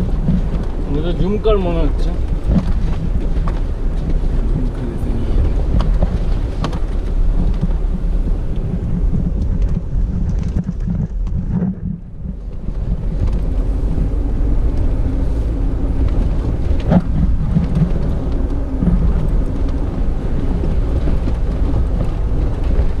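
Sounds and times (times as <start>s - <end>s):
vehicle rumbling on gravel: 0.0s - 23.0s
knocks and rattles: 8.7s - 13.6s.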